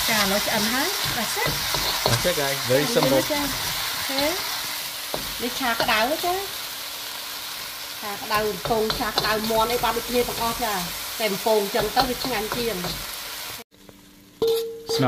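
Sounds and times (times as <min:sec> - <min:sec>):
wooden spatula scraping a wok: 0:00.0 - 0:06.3
food sizzling in a wok: 0:00.0 - 0:15.0.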